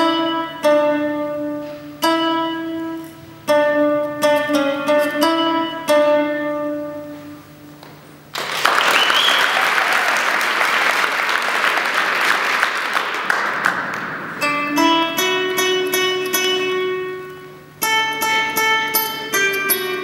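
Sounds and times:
acoustic guitar plucking: 0.0 - 8.3, 13.2 - 20.0
audience applause: 8.3 - 14.4
short rising whistle: 8.9 - 9.6.

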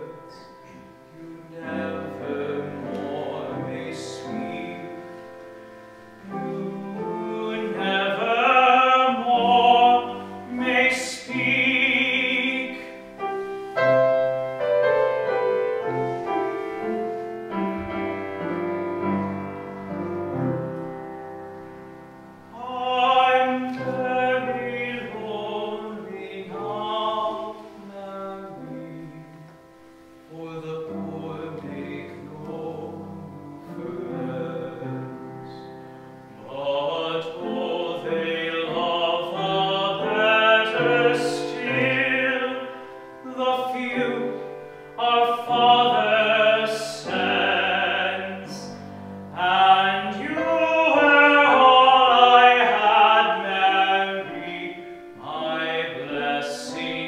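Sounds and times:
man singing operatic ballad: 0.0 - 14.6, 22.5 - 57.0
piano accompaniment: 0.0 - 57.0.

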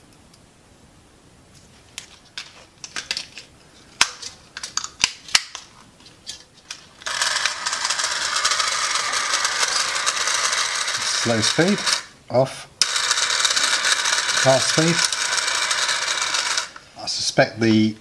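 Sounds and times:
small electric motor running: 7.0 - 12.1, 12.8 - 16.8
batteries clicking into toy car: 12.8 - 16.8.

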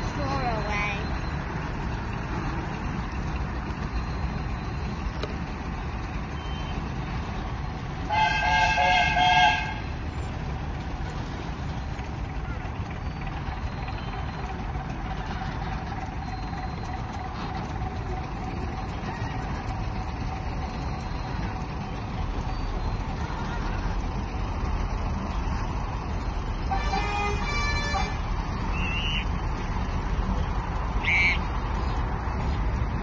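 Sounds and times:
low rumble of traction engine: 0.0 - 33.0
horn sounding: 8.0 - 9.9, 26.6 - 29.2, 31.0 - 31.5.

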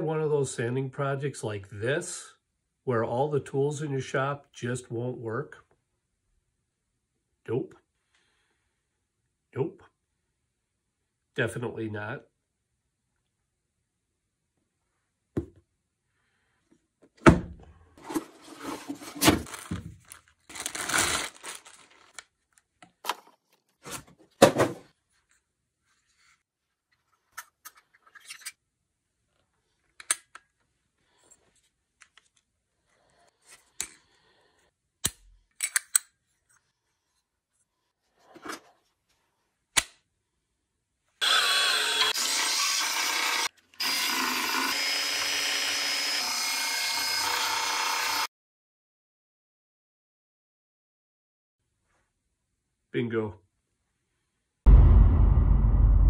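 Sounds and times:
cardboard tearing: 18.0 - 22.2
parts clicking together: 35.0 - 36.2.

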